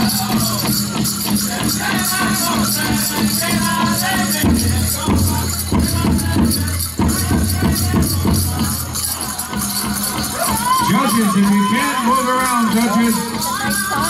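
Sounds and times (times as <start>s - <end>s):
group singing: 0.0s - 10.9s, 12.7s - 14.0s
group beating a large drum: 0.0s - 11.2s
leg bells jingling: 0.0s - 14.0s.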